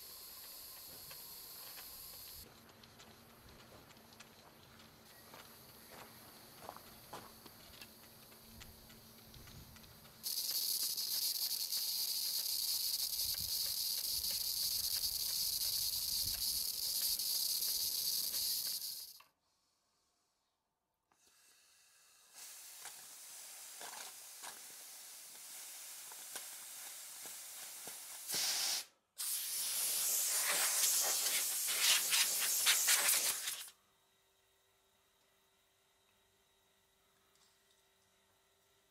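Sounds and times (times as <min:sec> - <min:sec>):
steam hissing: 0:00.0 - 0:02.4, 0:10.2 - 0:19.2, 0:21.3 - 0:33.7.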